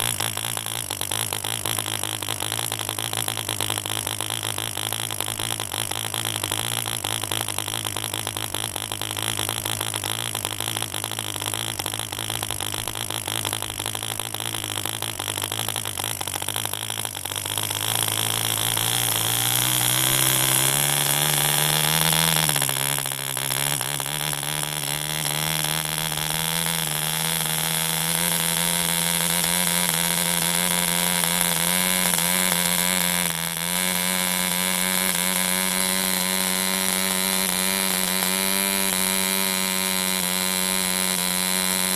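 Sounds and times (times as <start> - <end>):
model engine running: 0.0 - 41.9.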